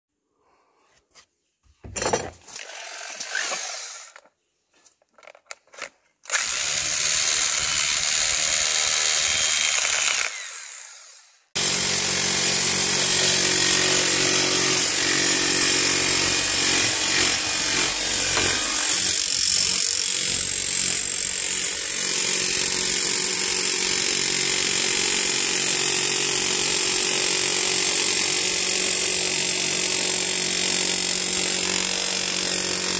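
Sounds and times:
demolition hammer hammering: 11.6 - 32.9.

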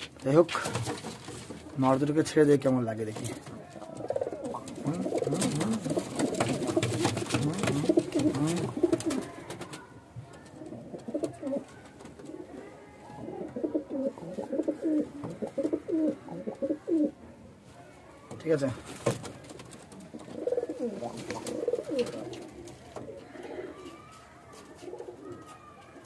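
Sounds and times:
wings and feet rustling on boards: 3.1 - 9.8
pigeons cooing: 3.8 - 9.8, 10.4 - 17.2, 19.9 - 24.1.

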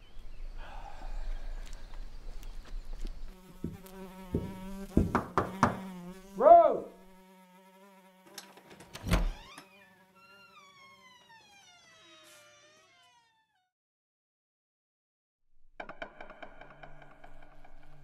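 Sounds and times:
steady insect-like buzz: 0.2 - 13.4
sharp knocks: 3.7 - 5.9
door creaking open: 8.3 - 13.7, 15.8 - 18.0.

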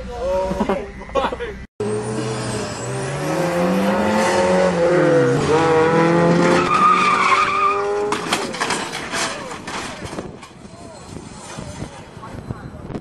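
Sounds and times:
rotary engine revving hard: 1.8 - 8.3
tyres squealing: 6.4 - 12.1.

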